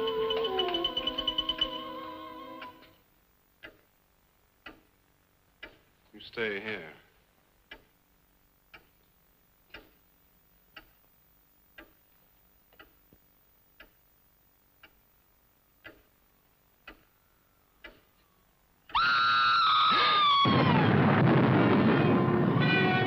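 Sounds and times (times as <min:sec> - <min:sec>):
clock ticking: 0:02.6 - 0:05.0, 0:05.6 - 0:07.0, 0:07.6 - 0:08.0, 0:08.6 - 0:12.1, 0:12.7 - 0:18.2.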